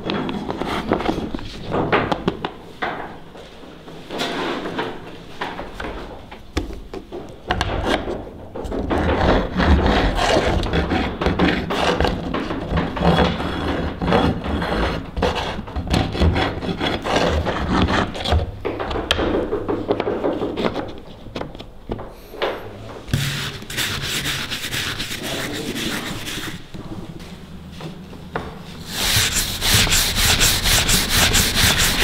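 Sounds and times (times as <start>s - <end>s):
file scraping ink stick: 23.1s - 26.6s, 28.8s - 32.0s.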